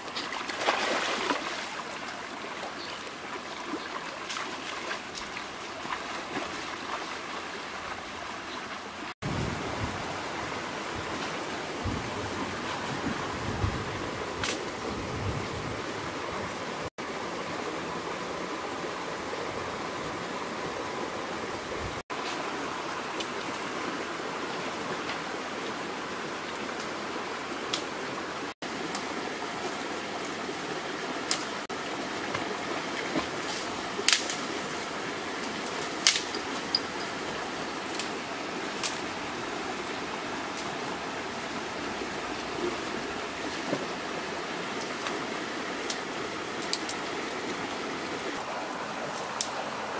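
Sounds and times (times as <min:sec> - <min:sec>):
river flowing over rocks: 0:15.8 - 0:49.9.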